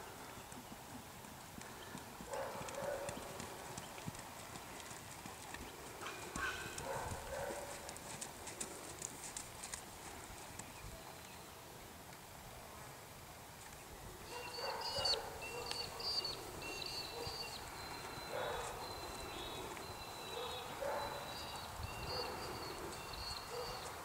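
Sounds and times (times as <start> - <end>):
horse hoofbeats on sand: 0.6 - 10.7.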